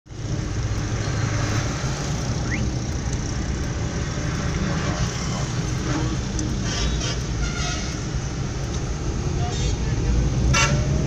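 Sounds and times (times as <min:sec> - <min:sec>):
van engine and road rumble: 0:00.1 - 0:11.0.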